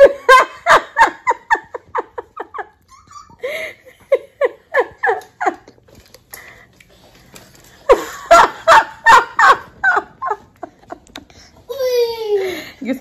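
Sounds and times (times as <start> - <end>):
woman laughing hard: 0.0 - 5.8, 7.9 - 11.2.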